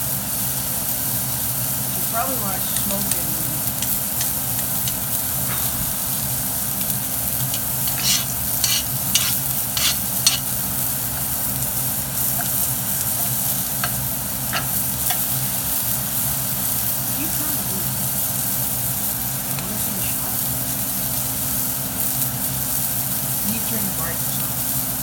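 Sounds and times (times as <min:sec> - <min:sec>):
fish sizzling in a pan: 0:00.0 - 0:25.0
steady low hum: 0:00.8 - 0:21.7
utensil scraping a pan: 0:03.7 - 0:06.3, 0:07.0 - 0:15.4.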